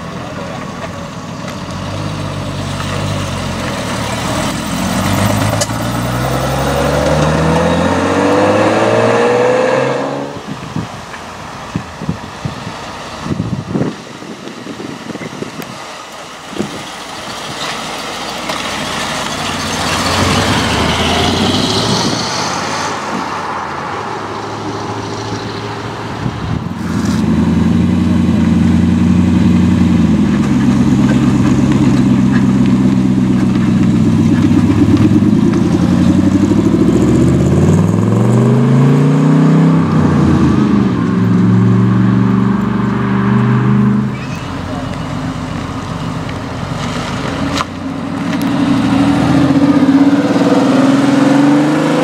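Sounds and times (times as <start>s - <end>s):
sports car accelerating away: 1.6s - 10.7s, 18.5s - 52.0s
vee eight car accelerating past: 4.2s - 10.5s, 34.7s - 44.7s.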